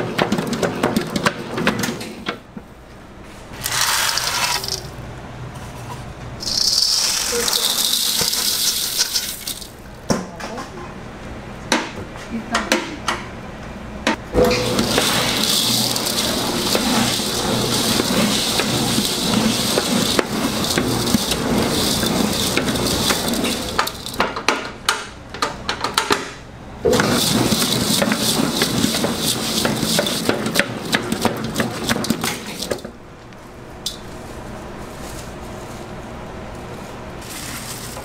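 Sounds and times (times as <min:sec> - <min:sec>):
dough mixer hook churning: 0:14.6 - 0:24.2, 0:26.9 - 0:32.9
sugar crunching against steel bowl: 0:14.8 - 0:24.2.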